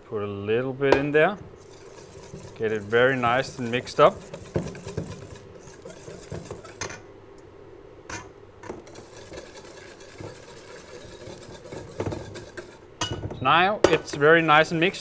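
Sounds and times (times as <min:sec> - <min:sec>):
whisk in metal bowl: 0:01.6 - 0:07.0, 0:08.7 - 0:12.9.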